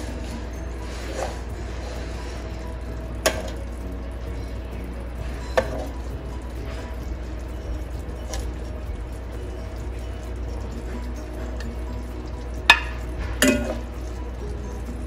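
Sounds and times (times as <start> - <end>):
steady low hum: 0.0 - 15.0
metal spoon clinking on glass: 12.7 - 13.8.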